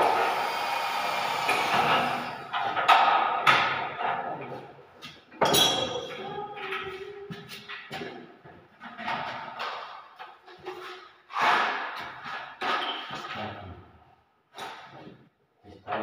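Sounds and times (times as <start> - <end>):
cordless drill whirring: 0.0 - 2.5.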